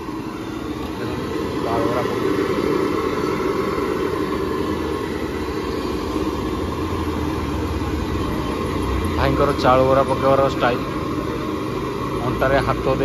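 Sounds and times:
engine rumble: 0.0 - 13.0
street traffic: 0.0 - 13.0.

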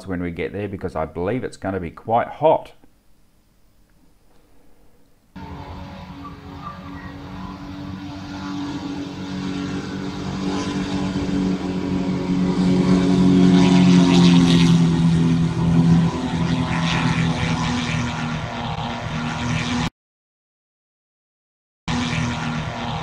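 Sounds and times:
propeller aircraft taking off: 4.6 - 19.9, 21.9 - 23.0.

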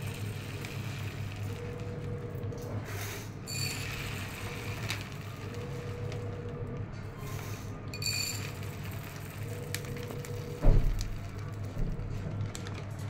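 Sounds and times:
rice grains pouring into steel cup: 0.0 - 2.2, 3.5 - 5.9, 8.0 - 11.6.

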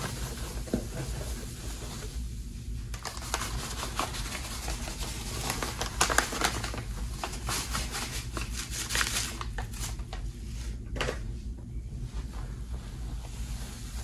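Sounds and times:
powder crackling on soap foam: 2.9 - 10.3.

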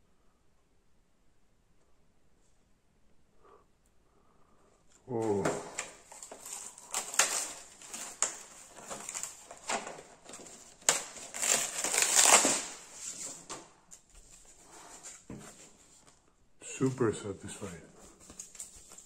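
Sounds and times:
plastic bag crinkling: 5.5 - 13.3.

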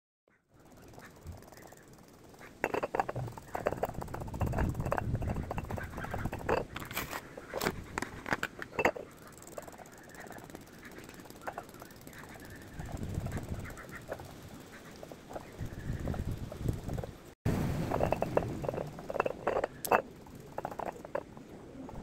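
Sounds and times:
sponge dabbing paint on glass: 2.5 - 6.8.

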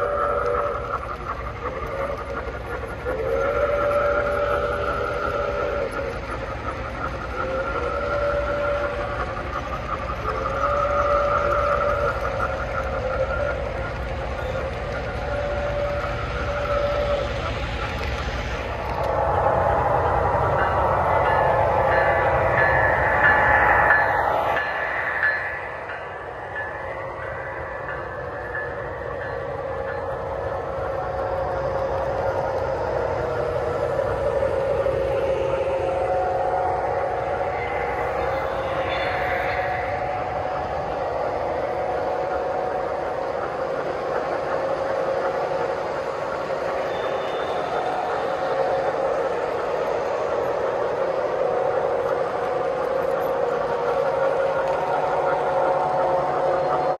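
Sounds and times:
model train whistle blasts: 0.0 - 1.0
freight cars rolling on track: 0.0 - 57.0
model train wheels rumbling on rail: 0.0 - 57.0
steady hum: 0.0 - 57.0.

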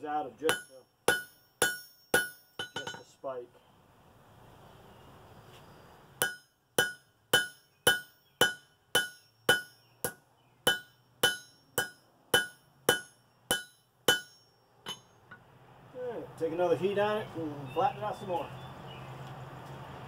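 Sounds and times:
hammer ringing on anvil: 0.5 - 3.1, 6.2 - 15.2.

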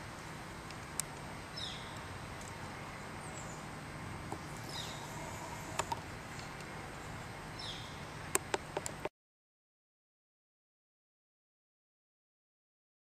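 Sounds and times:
low hiss: 0.0 - 9.1.

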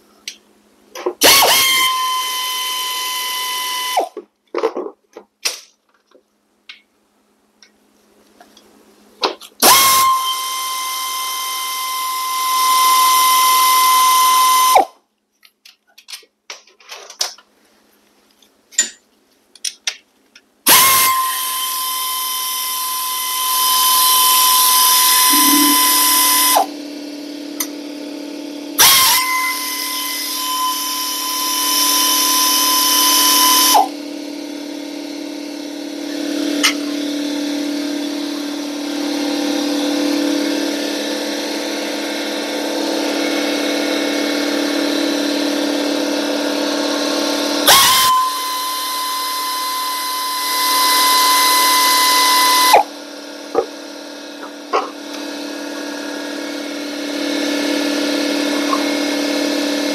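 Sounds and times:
air ratchet whining: 1.2 - 4.2, 9.6 - 14.9, 20.7 - 26.8, 28.8 - 33.9, 46.8 - 52.9
steady low hum: 20.5 - 59.9.

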